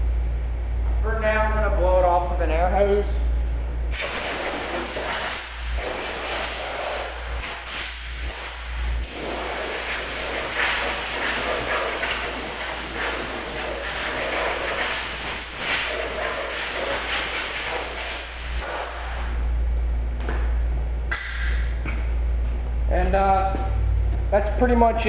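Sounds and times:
compressed air hissing: 3.9s - 19.4s.

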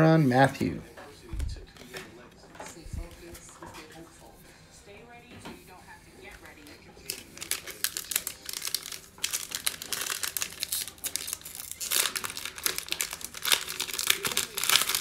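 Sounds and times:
foil wrapper crinkling and tearing: 6.6s - 15.0s.

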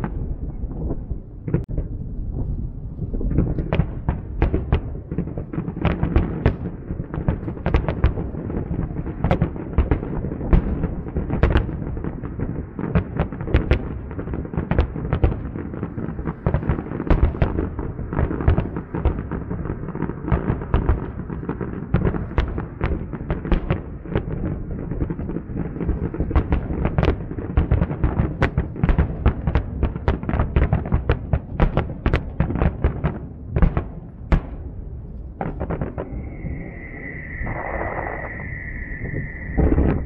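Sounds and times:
low rumble of booms: 32.9s - 40.0s.

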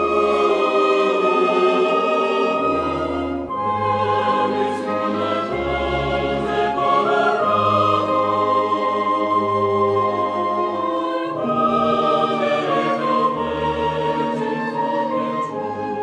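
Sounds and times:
slow choral singing: 0.0s - 16.0s.

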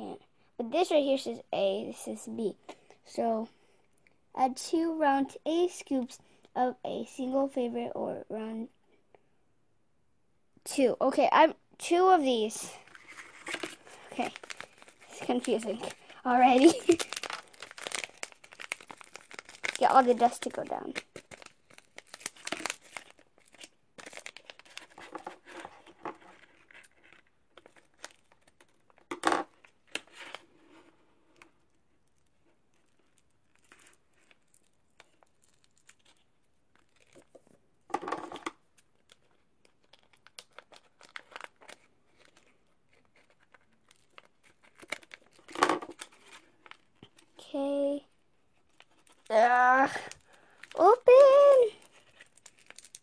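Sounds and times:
powder packets crinkling: 12.7s - 37.6s, 38.2s - 47.5s, 48.3s - 53.0s
packets tearing open: 12.8s - 29.1s, 32.8s - 37.4s, 38.3s - 47.3s, 49.9s - 53.0s.

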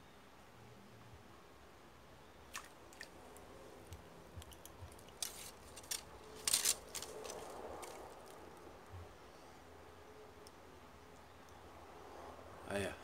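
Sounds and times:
fishing rod handling clicks and rustles: 3.8s - 8.4s.

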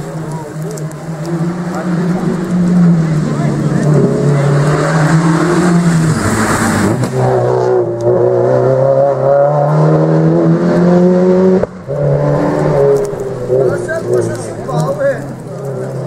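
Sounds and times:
rally car engine accelerating: 0.0s - 16.0s.

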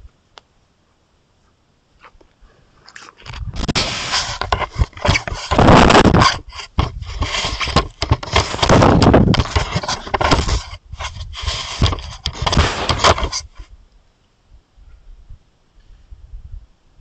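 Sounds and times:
fur scraping on microphone: 3.3s - 13.7s.

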